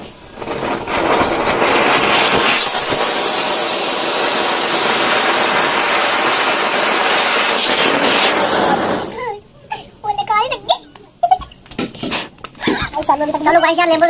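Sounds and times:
fountain fireworks hissing: 0.0s - 9.4s.

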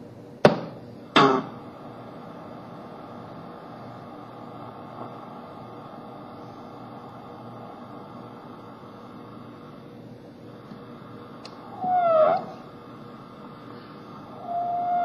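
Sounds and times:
noisy electronic drone: 10.5s - 15.0s.

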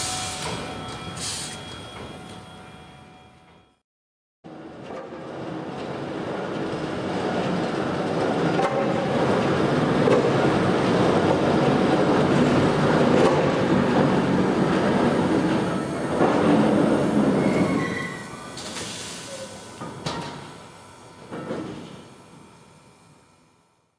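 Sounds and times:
railway turntable rumbling: 4.7s - 22.5s.

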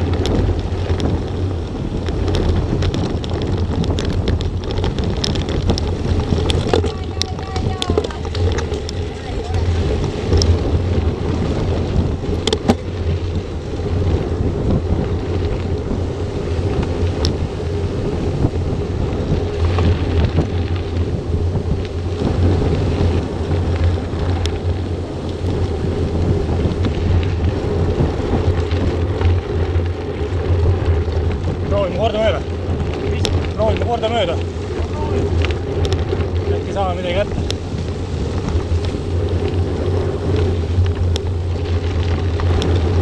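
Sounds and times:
bike tyres rolling on gravel: 0.0s - 43.0s
wind buffeting microphone: 0.0s - 43.0s.

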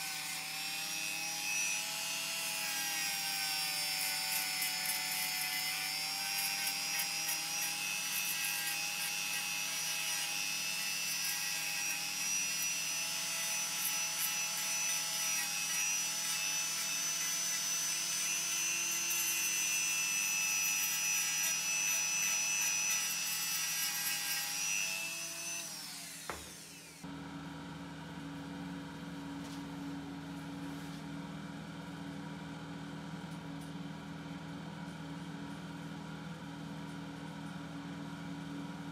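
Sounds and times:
power sander whine: 0.0s - 27.2s.

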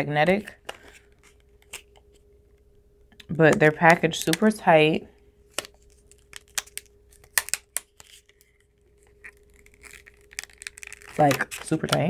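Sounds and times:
packaging crinkling: 5.5s - 12.0s.

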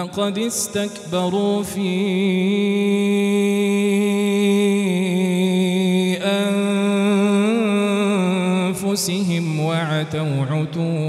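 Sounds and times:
man chanting melodically: 0.0s - 11.0s.

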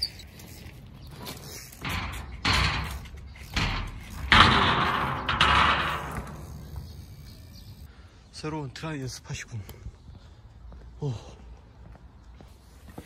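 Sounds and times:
bicycle scraping thuds: 0.0s - 7.9s.

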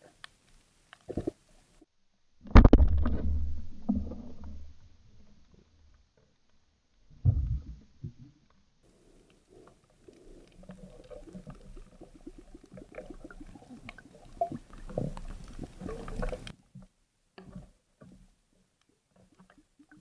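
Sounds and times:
underwater clicking and crackling: 0.1s - 1.8s, 7.3s - 20.0s.

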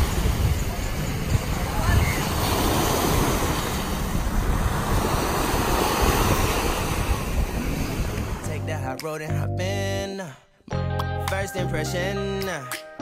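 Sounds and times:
ocean surf washing up: 0.0s - 8.6s
wind buffeting microphone: 0.0s - 8.9s.

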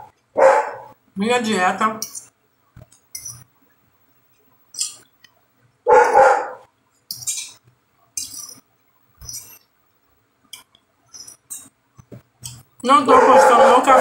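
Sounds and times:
dog barking: 0.4s - 0.9s, 5.9s - 6.7s, 13.1s - 14.0s.

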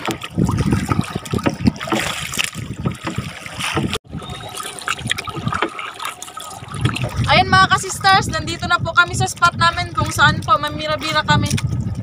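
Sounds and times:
water splashing around boat: 0.0s - 12.0s.

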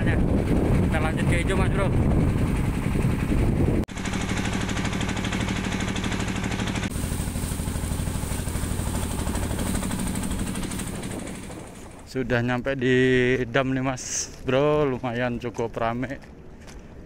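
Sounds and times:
boat engine running: 0.0s - 13.5s.

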